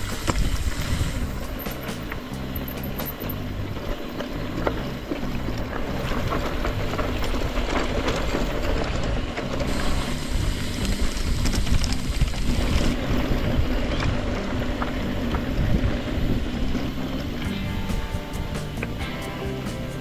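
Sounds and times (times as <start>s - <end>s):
wind on camera microphone: 0.0s - 2.1s, 5.9s - 18.5s
bikes rattling over rough trail: 0.0s - 20.0s.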